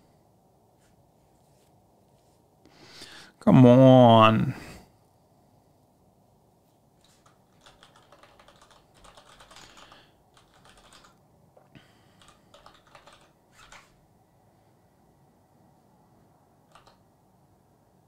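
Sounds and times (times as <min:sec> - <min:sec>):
typing on keyboard: 0:07.0 - 0:11.2, 0:12.1 - 0:14.0, 0:16.7 - 0:17.0.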